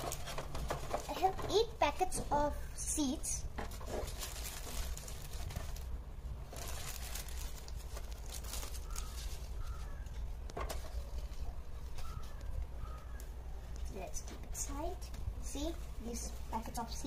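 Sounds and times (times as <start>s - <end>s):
paper and plastic bag rustling: 0.0s - 2.3s, 3.4s - 13.2s.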